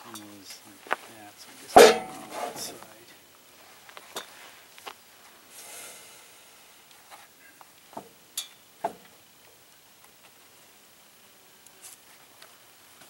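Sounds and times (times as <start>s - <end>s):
soft scrape of boards: 2.2s - 2.7s.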